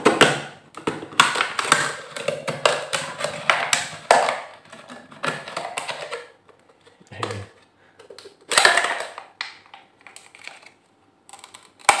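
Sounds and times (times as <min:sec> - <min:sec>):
plastic bottle crackling: 0:00.0 - 0:12.0.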